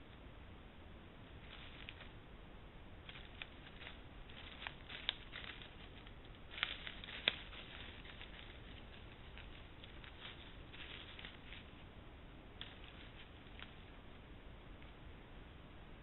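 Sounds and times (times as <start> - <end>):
sharp leaf crackles: 1.2 - 15.0
footsteps in dry leaves: 1.4 - 2.2, 3.0 - 11.9, 12.6 - 14.1.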